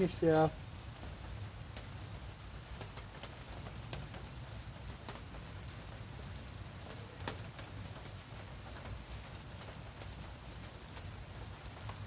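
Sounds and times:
light rain pattering: 0.0s - 12.0s.

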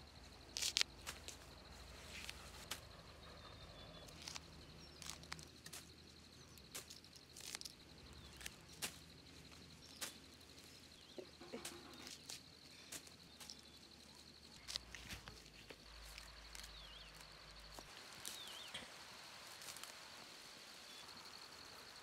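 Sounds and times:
leaves rustling: 0.3s - 3.0s, 4.1s - 21.9s
stems snapping: 0.5s - 1.5s, 4.1s - 6.0s, 6.6s - 10.3s, 14.5s - 18.8s, 19.5s - 20.0s.

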